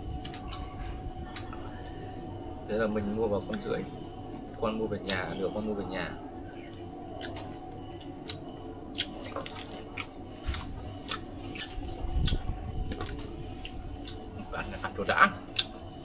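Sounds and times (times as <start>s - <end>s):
chewing roast duck: 6.6s - 14.8s.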